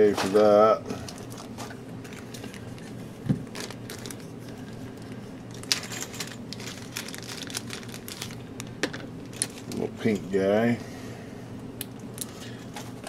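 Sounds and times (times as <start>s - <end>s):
plastic bags crinkling: 0.0s - 9.9s.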